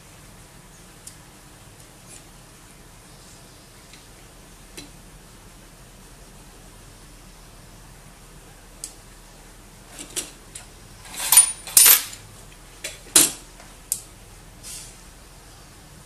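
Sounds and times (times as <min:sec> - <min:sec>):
small hard pieces clinking on metal: 0:11.0 - 0:12.2.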